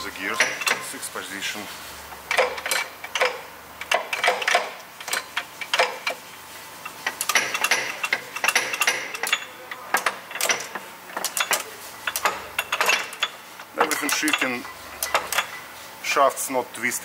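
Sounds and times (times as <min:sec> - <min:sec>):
metallic clicks of gears: 0:02.2 - 0:06.2, 0:06.8 - 0:15.6.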